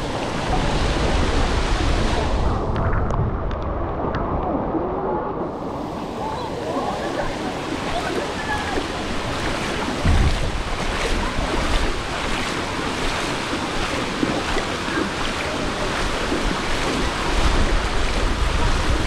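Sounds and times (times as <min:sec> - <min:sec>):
typhoon wind rushing: 0:00.0 - 0:14.4
water rushing: 0:00.0 - 0:19.0
wind gusts buffeting microphone: 0:00.0 - 0:19.0.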